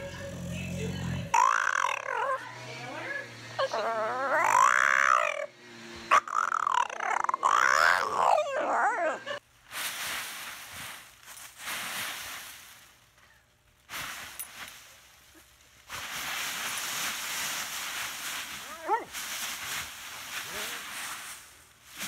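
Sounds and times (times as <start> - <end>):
dog whining: 1.3 - 2.6, 3.6 - 5.5, 6.1 - 9.4, 18.6 - 19.1
dry leaves crunching and rustling: 9.7 - 13.2, 13.9 - 22.0.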